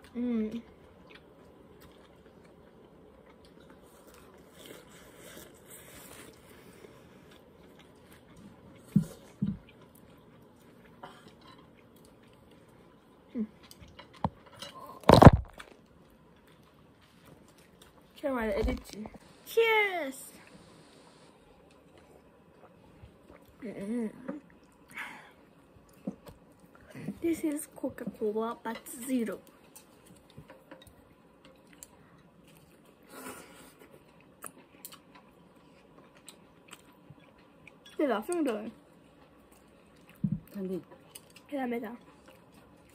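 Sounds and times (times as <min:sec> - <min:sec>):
faint chewing: 0:00.0 - 0:19.3, 0:20.3 - 0:42.9.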